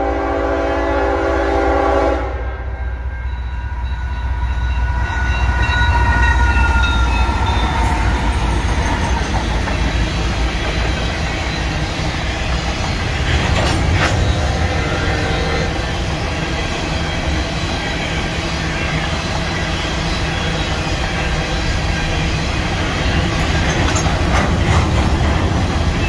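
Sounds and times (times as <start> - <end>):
locomotive air horn chord: 0.0 - 3.1, 14.4 - 15.9
locomotive engines rumbling and whining: 0.0 - 26.0
wheels clickety-clack on rail: 3.8 - 26.0.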